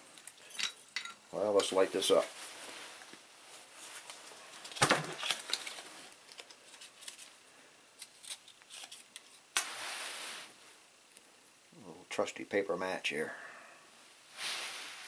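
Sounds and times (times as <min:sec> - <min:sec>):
matchbook clicks and rustles: 0:04.1 - 0:07.4, 0:08.0 - 0:09.8.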